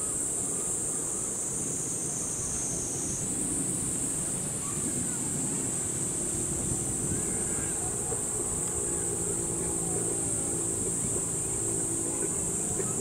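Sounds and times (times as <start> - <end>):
high-pitched insect chorus: 0.0 - 13.0
low background rumble: 4.6 - 13.0.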